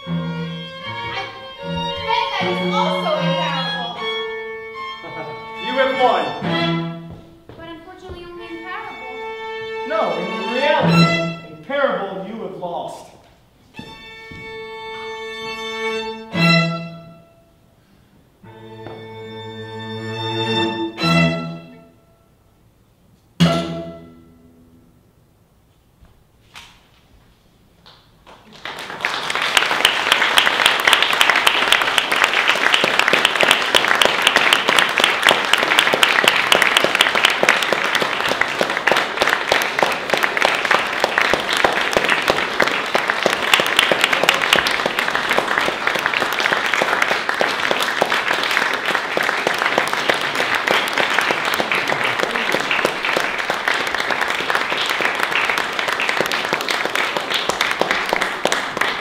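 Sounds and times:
audience applauding: 27.8s - 59.0s.

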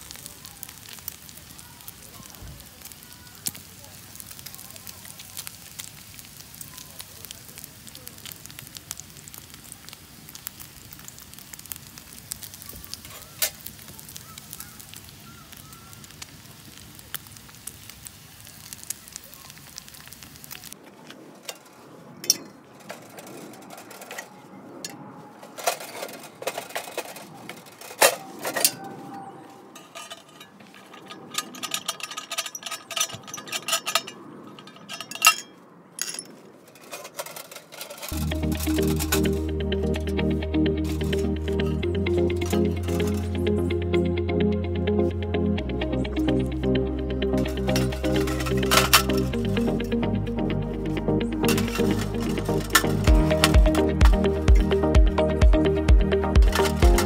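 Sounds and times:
chicken sizzling on griddle: 0.0s - 24.2s, 37.2s - 40.0s, 40.8s - 43.7s, 47.4s - 49.8s, 51.3s - 55.0s
wood fire crackling: 0.0s - 57.0s
metallic clinks: 29.8s - 39.3s
music: 38.2s - 57.0s.

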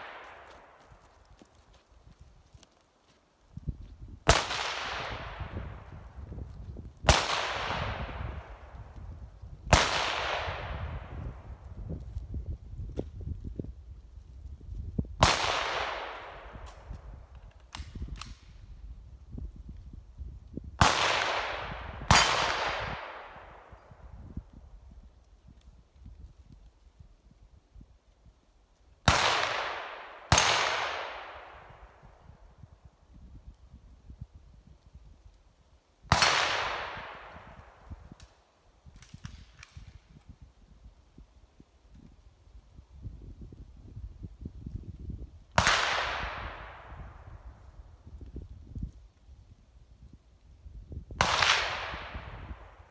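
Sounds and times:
gunshots with echo: 7.1s - 8.5s, 9.7s - 11.1s.

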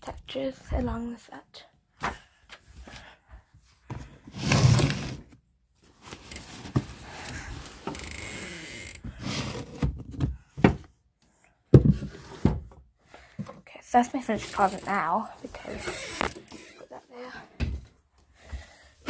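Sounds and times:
knocks and thumps: 9.0s - 11.0s, 11.7s - 13.6s.

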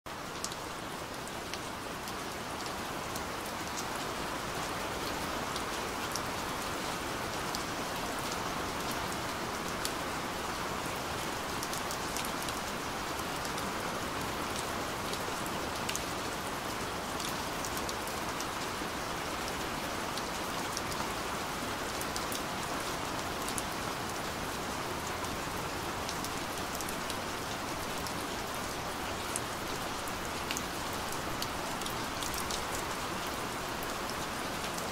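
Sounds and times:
steady rain hiss: 0.1s - 34.9s.

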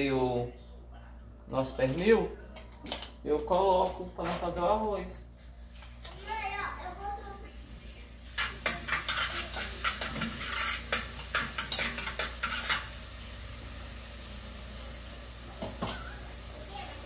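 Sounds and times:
lard sizzling: 1.5s - 17.0s
metal spoon clinking against pot: 8.4s - 12.9s.

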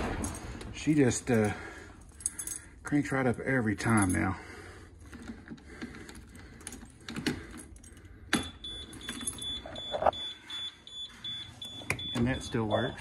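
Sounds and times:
keys jangling on a ring: 1.2s - 4.4s, 6.4s - 9.9s
rapid high beeping: 8.7s - 13.0s.

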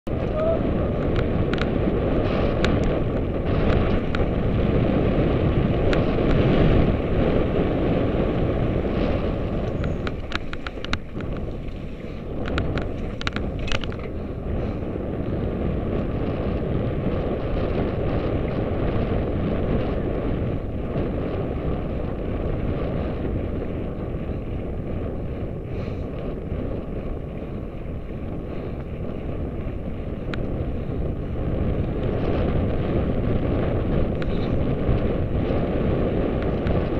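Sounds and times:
wind buffeting microphone: 0.0s - 36.9s
sharp clicks and rattles: 9.3s - 14.2s.

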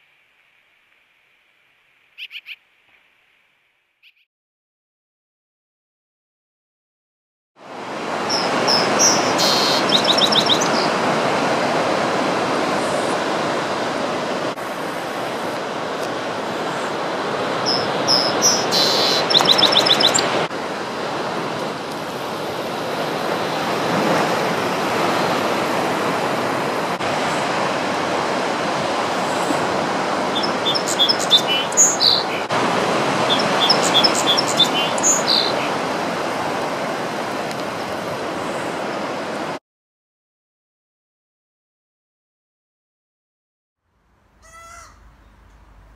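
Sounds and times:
sparrow singing trilled notes: 8.3s - 10.9s, 17.7s - 20.3s, 30.4s - 32.4s, 33.3s - 35.7s.

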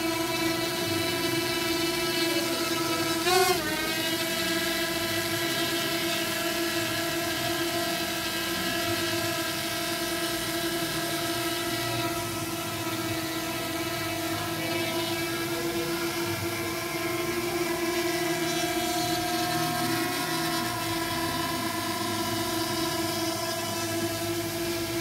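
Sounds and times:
drone propellers humming: 0.0s - 25.0s.

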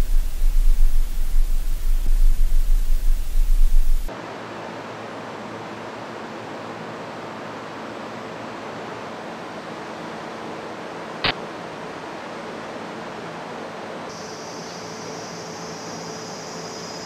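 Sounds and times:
steady hiss: 0.0s - 4.1s, 14.1s - 17.0s.

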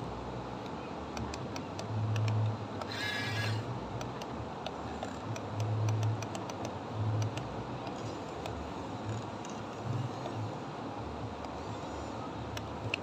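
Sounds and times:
light clicks: 0.6s - 3.0s, 4.0s - 10.4s
toy electric motors humming: 1.2s - 10.5s, 11.4s - 13.0s.

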